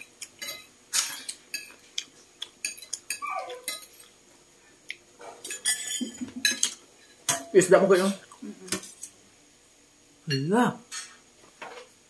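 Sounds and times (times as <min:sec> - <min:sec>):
spoons clinking on bowls: 0:00.0 - 0:01.8, 0:02.6 - 0:04.1, 0:05.4 - 0:09.0.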